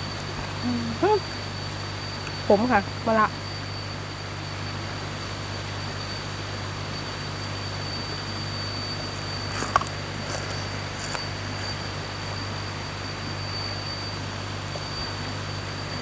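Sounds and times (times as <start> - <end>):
thin high tone: 0.0 - 16.0
crisp chewing crunches: 9.5 - 11.7.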